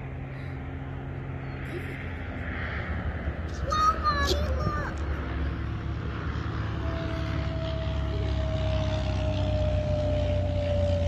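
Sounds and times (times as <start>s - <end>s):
low engine rumble: 0.0s - 11.0s
humming tone dropping in pitch: 5.0s - 11.0s.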